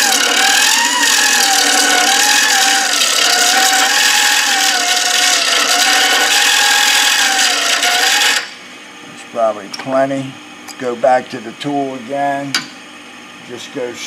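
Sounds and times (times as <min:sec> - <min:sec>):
lathe cutter rasping buzz: 0:00.0 - 0:08.6.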